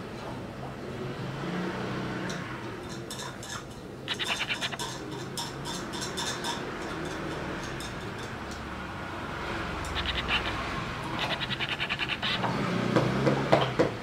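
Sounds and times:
coffee tool scratching and clicking: 4.1s - 5.2s, 9.9s - 12.5s.

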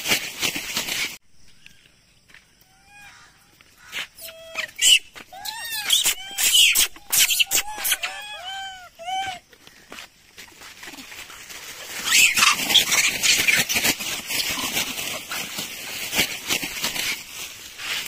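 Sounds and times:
monkeys giving harsh calls: 2.7s - 9.4s, 11.8s - 15.6s
scuffling and clicks: 9.4s - 18.0s.

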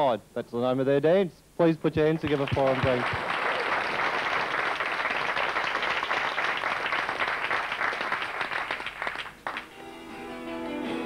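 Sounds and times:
audience applauding: 2.1s - 9.7s.

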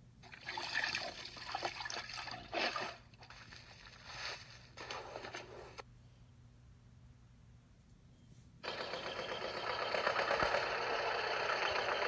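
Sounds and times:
steady low hum: 2.9s - 12.0s.

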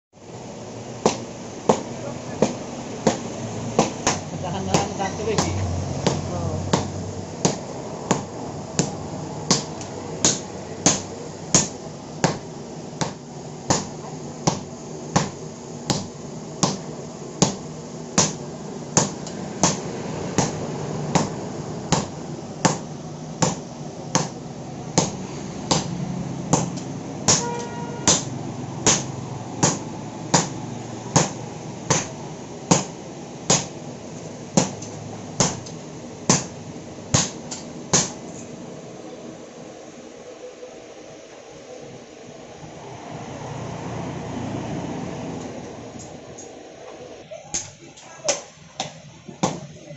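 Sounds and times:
sledgehammers striking iron on anvil: 25.0s - 25.9s, 26.5s - 30.6s.

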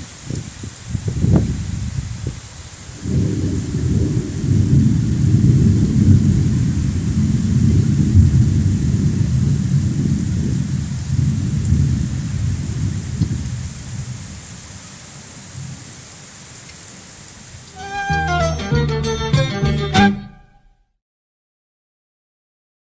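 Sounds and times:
rain: 0.0s - 18.4s
thunder rumbling: 3.0s - 14.2s.

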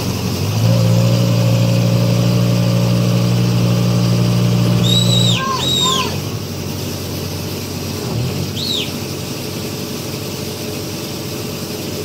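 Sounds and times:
diesel engine droning: 0.0s - 12.0s.

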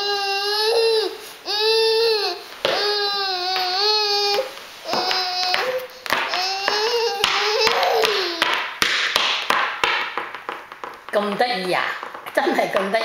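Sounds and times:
toddler singing: 0.0s - 8.6s.

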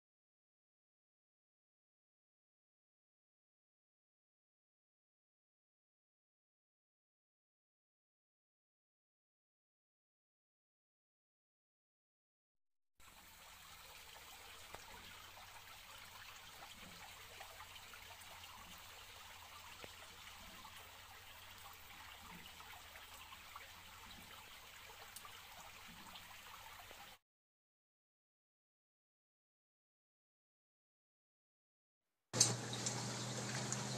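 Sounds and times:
water trickling into a tub: 13.0s - 27.2s, 32.4s - 33.9s.

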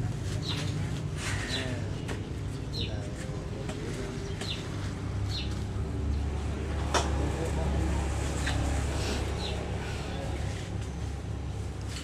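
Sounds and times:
low market background: 0.0s - 12.0s.

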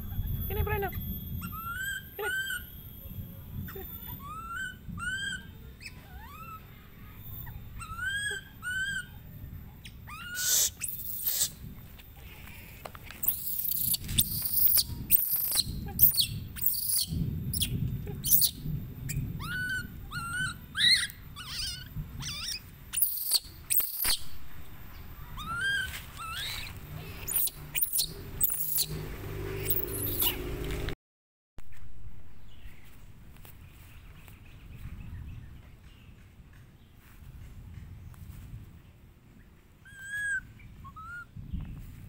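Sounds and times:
baby monkey screaming: 0.0s - 9.2s, 9.8s - 11.6s, 12.2s - 24.2s, 25.2s - 30.5s, 39.8s - 41.4s.

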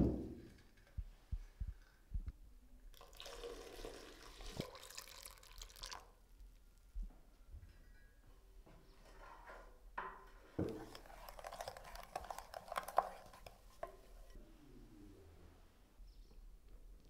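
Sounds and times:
wooden spatula stirring in glass bowl: 10.1s - 14.4s.

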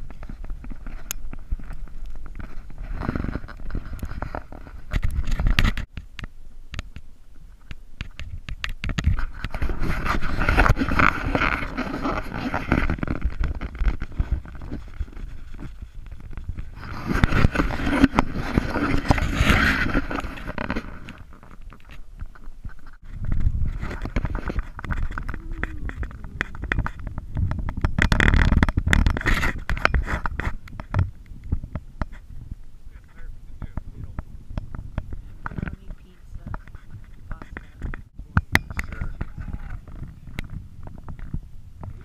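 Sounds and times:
sled runners sliding on snow: 9.2s - 21.6s.

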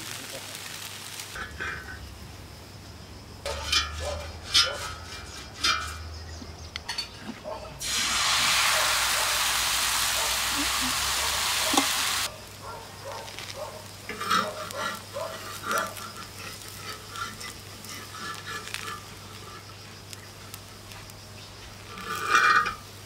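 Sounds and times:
batter sizzling on griddle: 0.0s - 2.6s, 7.8s - 23.0s
metal spatula scraping griddle: 1.4s - 2.0s, 3.5s - 7.1s, 13.3s - 23.0s.

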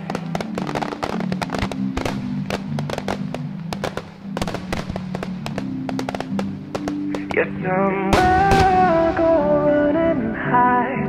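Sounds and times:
fireworks bangs and crackles: 0.0s - 10.3s
music playing: 0.0s - 11.0s.

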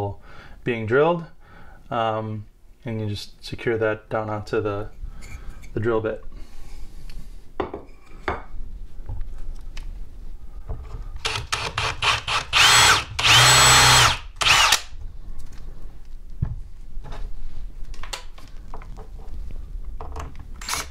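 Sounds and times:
cordless drill whine: 11.2s - 14.9s.

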